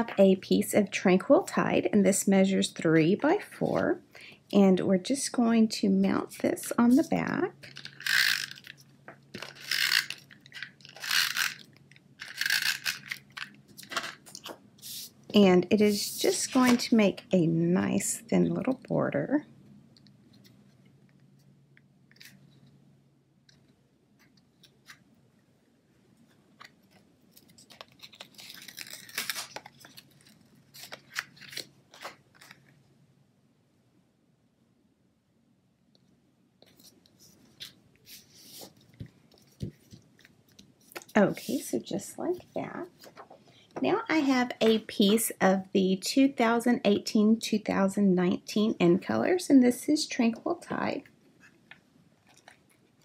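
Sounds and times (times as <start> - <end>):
cardstock rustling: 15.9 - 17.0, 26.6 - 32.7.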